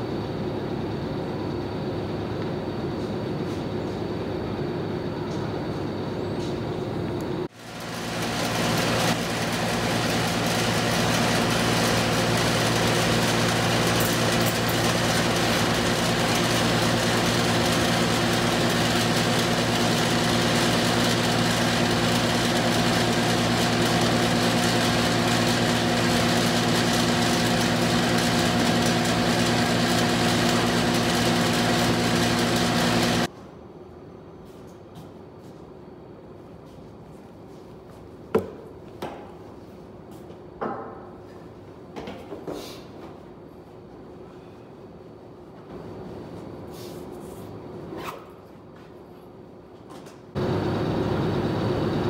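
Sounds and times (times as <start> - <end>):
box fan motor hum: 7.1 - 33.3, 50.4 - 52.0.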